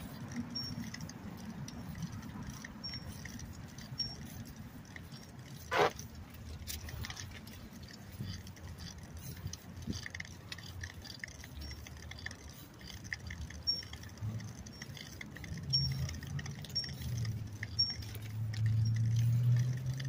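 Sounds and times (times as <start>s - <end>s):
bicycle rattling and clicking: 0.0s - 20.0s
high squeak: 5.7s - 6.0s.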